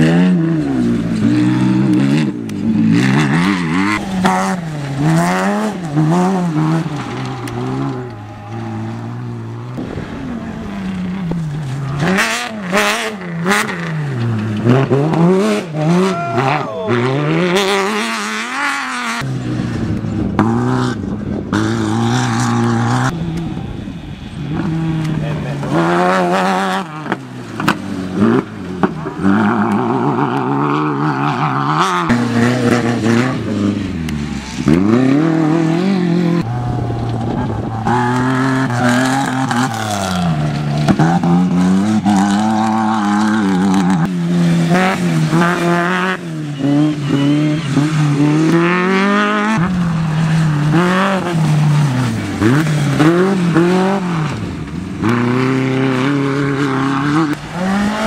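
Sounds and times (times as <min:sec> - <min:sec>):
racing buggy engines revving: 0:00.0 - 0:58.0.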